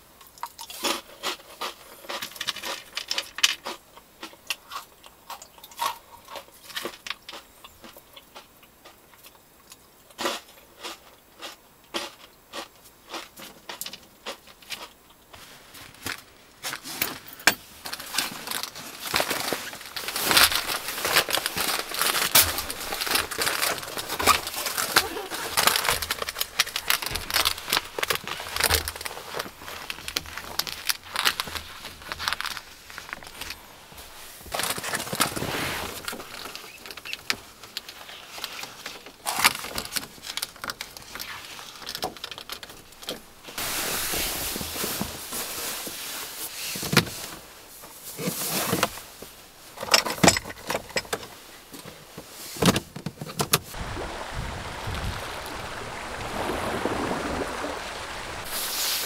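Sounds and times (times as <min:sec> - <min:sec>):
steady hiss: 0:13.6 - 0:38.8, 0:43.2 - 0:49.8, 0:53.7 - 0:59.0
rustling: 0:14.6 - 0:59.0.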